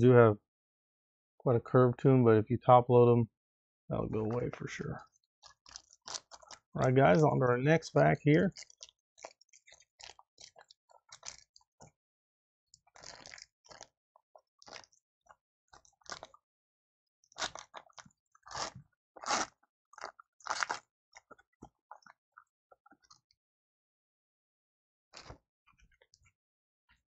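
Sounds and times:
foil wrapper crinkling and tearing: 20.4 - 20.8.

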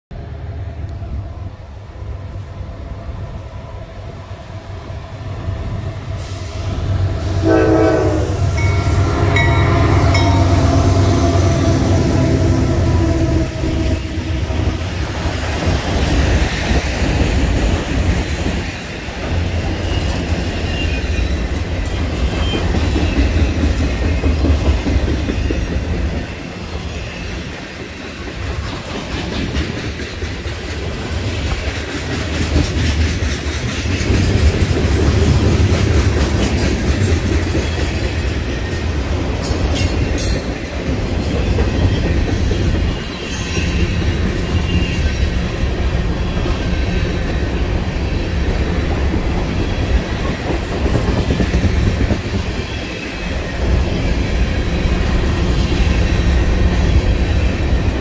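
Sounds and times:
diesel locomotive rumble: 0.2 - 20.6
train horn: 6.2 - 15.0
train wheels clattering on rails: 13.6 - 58.0.

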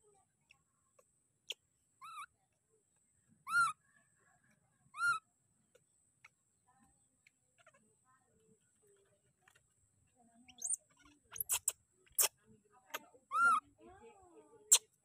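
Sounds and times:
baby monkey cooing: 1.4 - 2.3, 3.4 - 3.8, 4.9 - 5.2, 10.5 - 12.3, 12.9 - 13.6.

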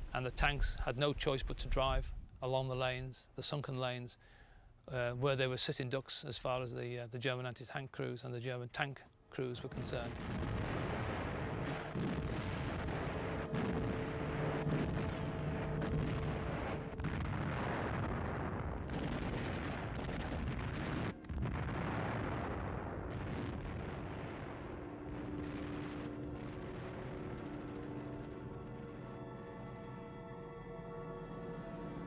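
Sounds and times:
continuous artillery rumble: 9.6 - 28.4
sharp artillery shots: 9.8 - 24.3.

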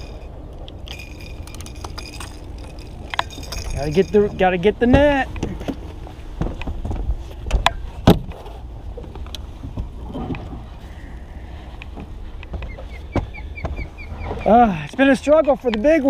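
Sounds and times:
low rumble of wind and water: 0.0 - 16.0
footsteps on boat deck: 4.3 - 14.5.

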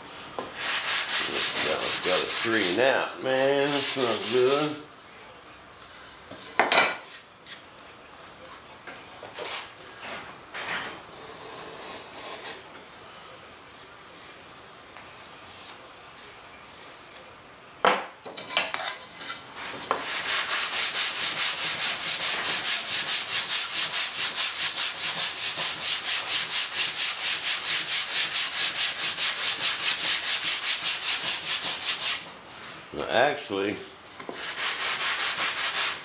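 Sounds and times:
sanding bar rubbing on wood: 0.6 - 4.8, 19.6 - 32.3, 34.3 - 36.0.

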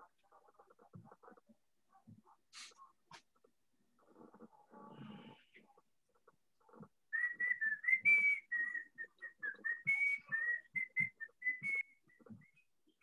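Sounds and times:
person whistling a tune: 7.2 - 12.0.

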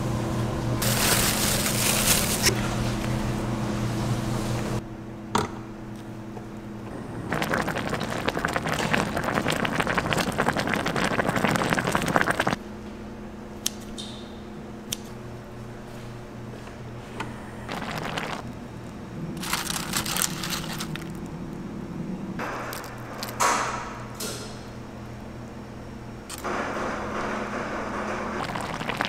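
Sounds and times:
steady low hum: 0.0 - 29.0
sauce boiling and bubbling: 6.9 - 12.6, 17.7 - 18.5, 19.4 - 21.3, 28.3 - 29.0.

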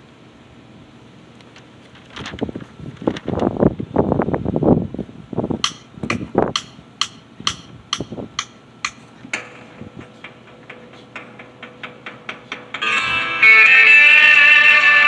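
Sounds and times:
sharp taps at a steady beat: 5.6 - 12.9
long held tone: 12.8 - 15.0.

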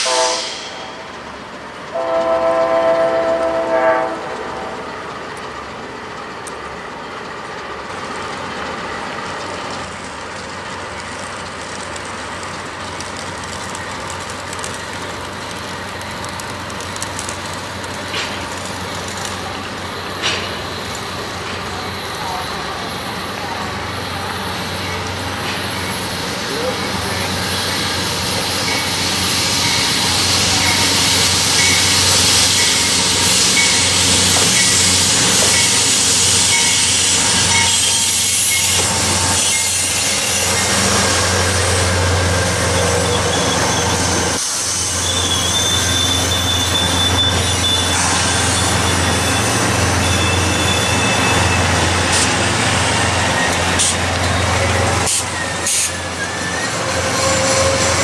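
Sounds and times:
train rumbling past: 0.0 - 58.0
high-pitched wheel squeal: 35.4 - 40.7, 42.3 - 58.0.

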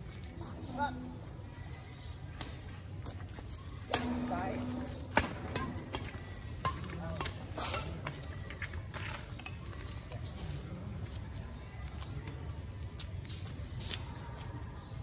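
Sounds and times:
racquets striking shuttlecock: 3.8 - 9.8.

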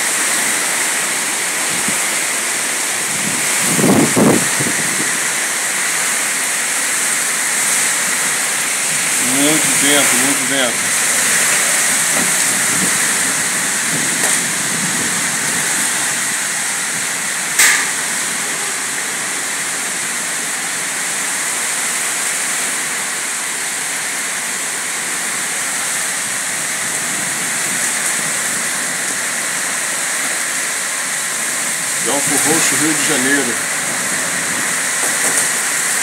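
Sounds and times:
heavy rain in strong wind: 0.0 - 36.0
sharp knock: 17.6 - 18.0.

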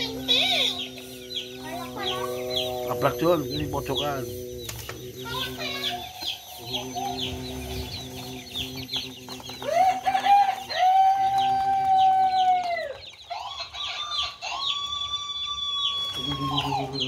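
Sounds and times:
baby chicks peeping: 0.0 - 17.0
rooster crowing: 9.5 - 17.0.

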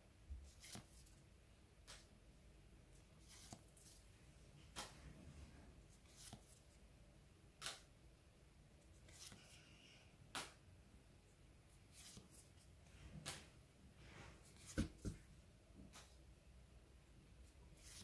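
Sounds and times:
cards sliding swish: 0.5 - 1.1, 3.2 - 4.0, 6.0 - 6.6, 9.0 - 9.6, 11.9 - 12.6, 17.8 - 18.0.

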